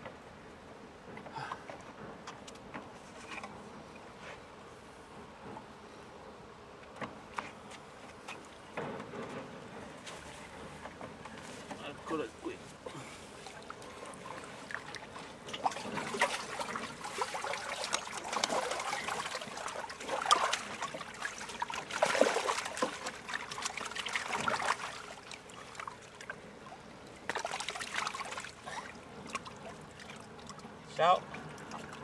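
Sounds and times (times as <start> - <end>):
water splashing through net: 14.2 - 26.4, 27.2 - 30.6.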